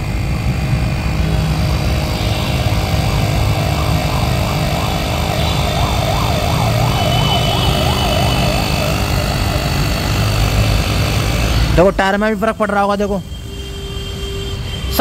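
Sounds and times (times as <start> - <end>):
tyre inflator compressor running: 1.5 - 11.9
warbling tone: 1.9 - 11.5.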